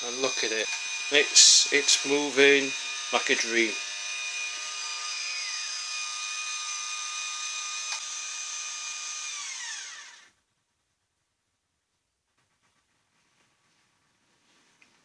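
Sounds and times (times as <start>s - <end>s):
motors whining: 0.0s - 10.3s.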